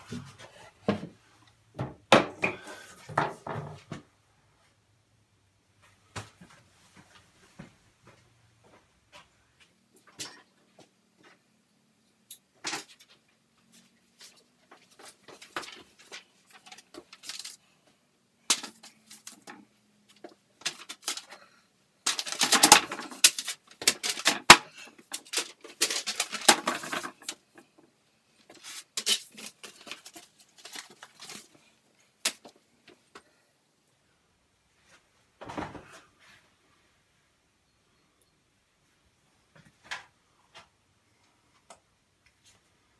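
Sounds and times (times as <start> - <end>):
paper rustling: 14.2 - 17.7, 20.1 - 21.5, 22.1 - 27.4, 28.5 - 31.7.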